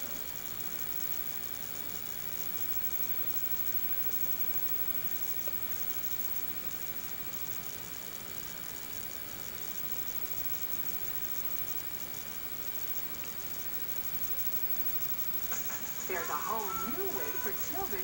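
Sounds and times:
tape static hiss: 0:00.0 - 0:18.0
faint high-pitched tone: 0:14.1 - 0:18.0.

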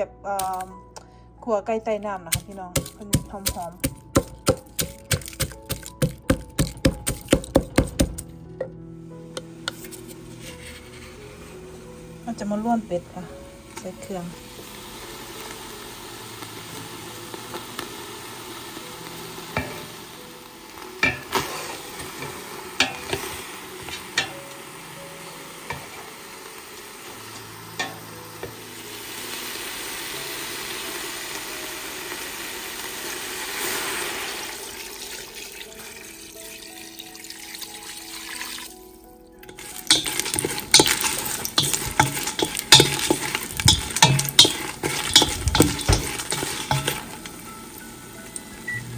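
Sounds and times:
meat sizzling in a pot: 0:02.2 - 0:08.2, 0:09.1 - 0:48.9
wooden spoon knocking pot: 0:02.3 - 0:08.8, 0:39.5 - 0:47.2
dried chilies scraping in metal pot: 0:09.6 - 0:12.6, 0:39.5 - 0:47.3.

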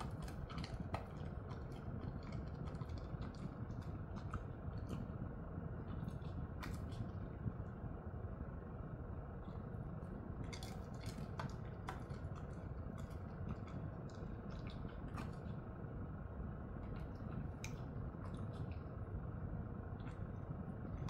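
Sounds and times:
low room hum: 0:00.0 - 0:21.0.

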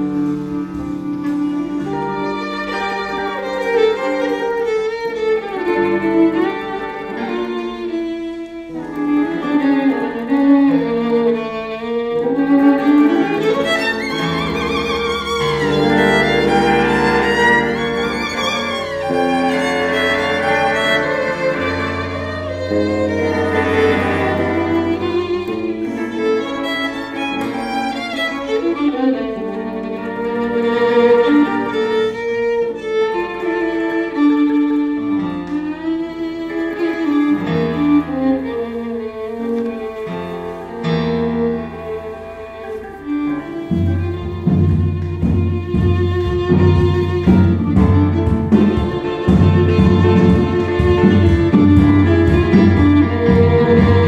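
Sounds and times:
bowed violin: 0:00.0 - 0:54.0
cello: 0:00.0 - 0:54.0.

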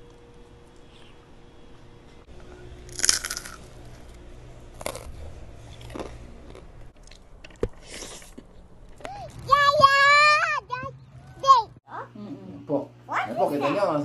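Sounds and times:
crunchy bites and chewing: 0:02.8 - 0:08.7.

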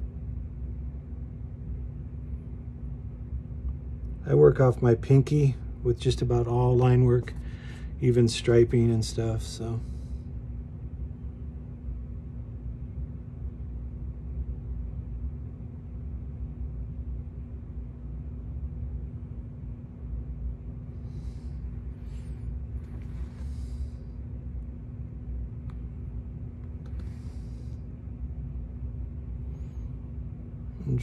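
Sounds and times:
low room hum: 0:00.0 - 0:31.0
short airy breaths: 0:07.4 - 0:08.0, 0:20.9 - 0:24.3, 0:26.9 - 0:28.0.

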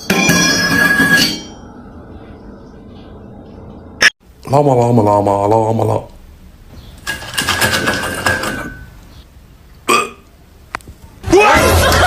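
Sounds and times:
crackers clattering in glass bowl: 0:07.0 - 0:08.9.

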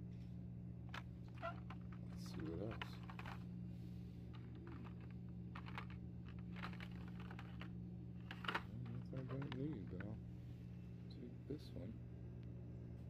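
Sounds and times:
steady low hum: 0:00.0 - 0:13.0
plastic packaging clicks and rustles: 0:00.9 - 0:03.4, 0:04.4 - 0:10.2.

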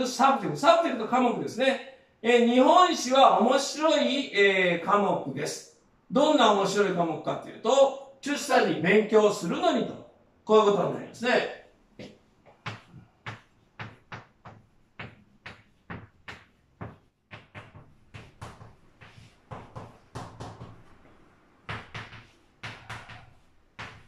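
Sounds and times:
chalk tapping and scraping: 0:12.0 - 0:24.0.

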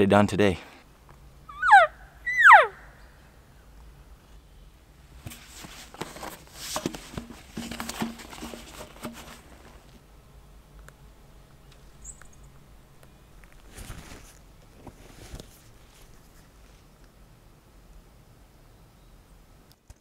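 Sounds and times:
high whistling elk bugle: 0:01.5 - 0:02.9.

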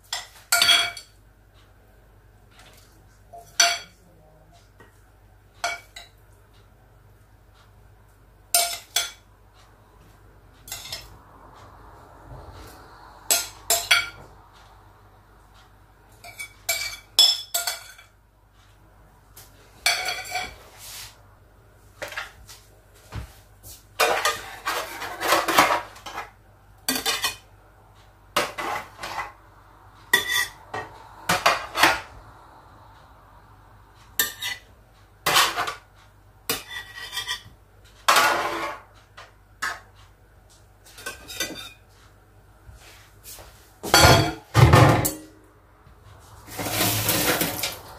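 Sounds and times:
dishes and cutlery clinking: 0:00.0 - 0:01.2, 0:02.6 - 0:04.0, 0:05.6 - 0:06.2, 0:08.5 - 0:09.3, 0:10.6 - 0:11.2, 0:16.2 - 0:18.2, 0:19.8 - 0:20.6, 0:24.0 - 0:27.5, 0:30.1 - 0:32.1, 0:34.2 - 0:34.7, 0:36.5 - 0:40.0, 0:40.8 - 0:41.9, 0:43.8 - 0:45.3.

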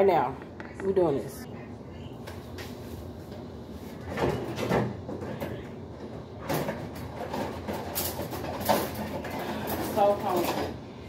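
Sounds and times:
kitchen knocks and rustles: 0:03.3 - 0:10.8.

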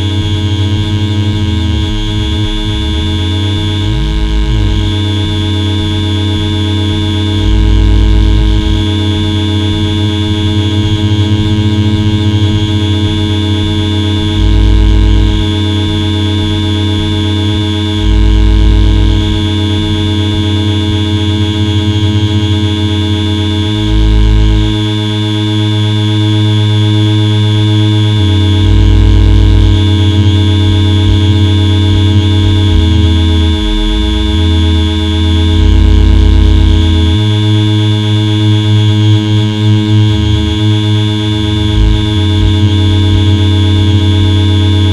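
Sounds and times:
electronic buzzing drone: 0:00.0 - 0:44.9
low electronic pulse: 0:00.0 - 0:44.9
heavy low swell: 0:31.0 - 0:37.4.

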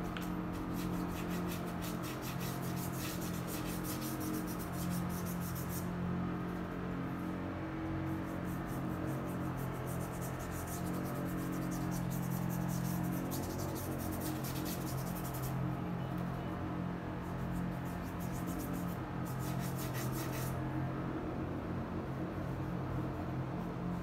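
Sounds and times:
low machine hum: 0:00.0 - 0:24.0
paintbrush scrubbing on board: 0:00.2 - 0:05.9, 0:08.1 - 0:15.6, 0:17.2 - 0:20.6.

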